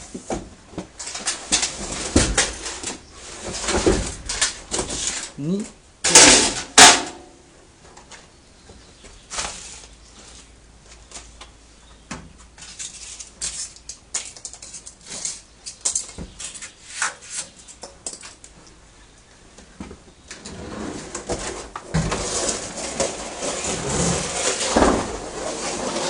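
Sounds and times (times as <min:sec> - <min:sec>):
parts clicking on concrete floor: 0:12.5 - 0:18.8.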